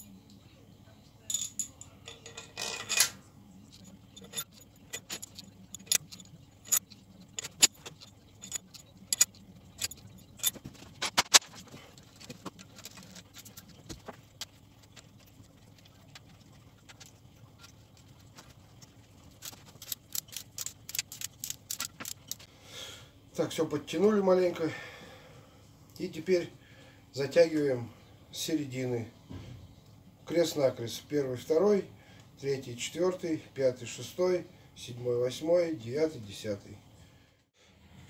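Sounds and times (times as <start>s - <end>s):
metallic bolt clicks: 4.2s - 11.4s.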